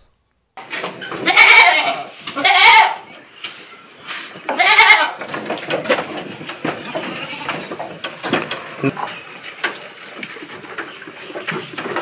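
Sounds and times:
goats bleating: 0:01.2 - 0:03.1, 0:04.5 - 0:05.2, 0:06.7 - 0:07.8.

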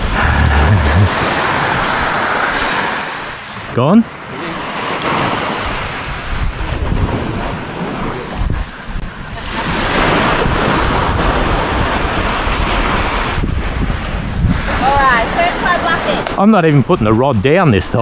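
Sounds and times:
wind on microphone: 0:00.0 - 0:03.7, 0:04.6 - 0:17.0
small waves breaking on beach: 0:00.0 - 0:18.0.

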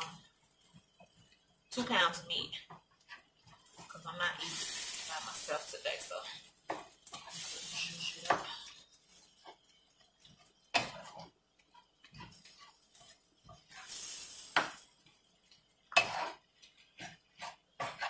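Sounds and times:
spatula scraping frying pan: 0:02.7 - 0:14.8, 0:15.9 - 0:18.0.

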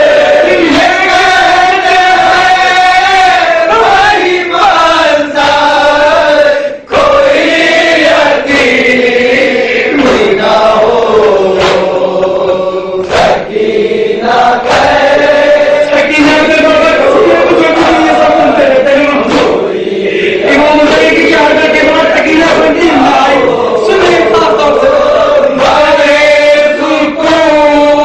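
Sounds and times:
man chanting into a microphone: 0:00.0 - 0:13.5, 0:14.3 - 0:28.0
group of men chanting: 0:00.0 - 0:28.0
chest-beating slaps: 0:06.9 - 0:27.9.

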